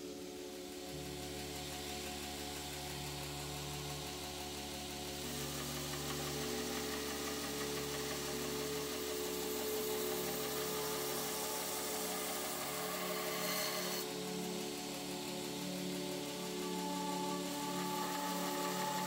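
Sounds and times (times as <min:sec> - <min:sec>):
low held music tones: 0:00.0 - 0:19.0.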